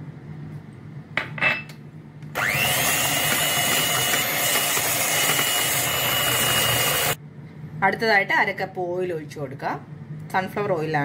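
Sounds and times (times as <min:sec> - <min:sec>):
electric hand mixer whirring: 0:02.4 - 0:07.2.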